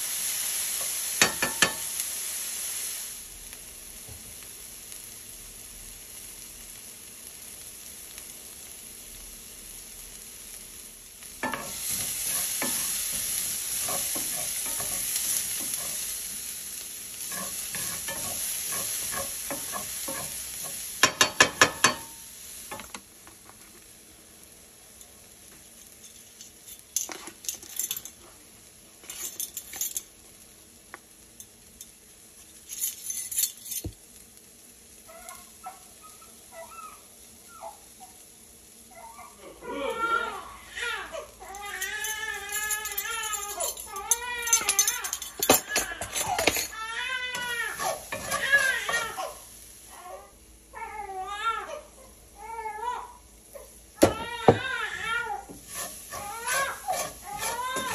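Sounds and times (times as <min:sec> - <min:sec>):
onions sizzling in oil: 0:00.0 - 0:32.8, 0:33.6 - 0:50.8, 0:52.2 - 0:57.9
wooden spoon scraping pan: 0:11.4 - 0:16.1, 0:17.2 - 0:22.0, 0:42.6 - 0:49.2, 0:55.5 - 0:57.9.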